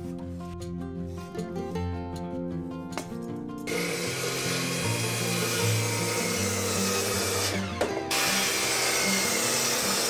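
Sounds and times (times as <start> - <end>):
circular saw cutting wood: 3.7 - 10.0.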